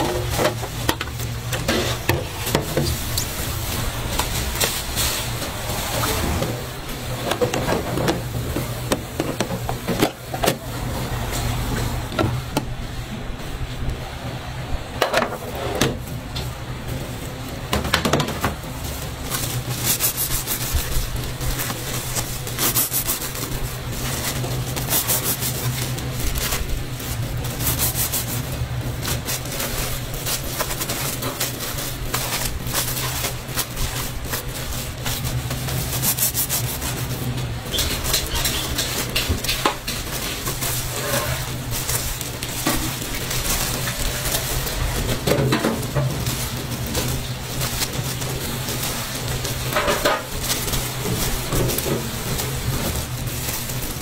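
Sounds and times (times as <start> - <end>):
buns moved on metal trays: 14.9 - 54.0.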